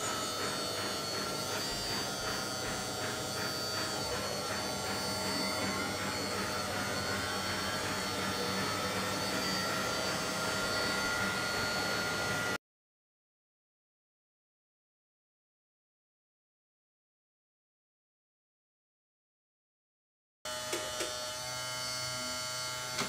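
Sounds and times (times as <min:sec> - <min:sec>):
electric pump motor whining: 0:00.0 - 0:12.6, 0:20.5 - 0:23.0.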